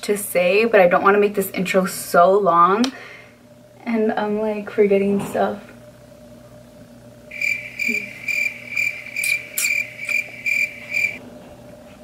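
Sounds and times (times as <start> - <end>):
faint room hum: 0.0 - 12.0
crickets chirping: 7.3 - 11.2.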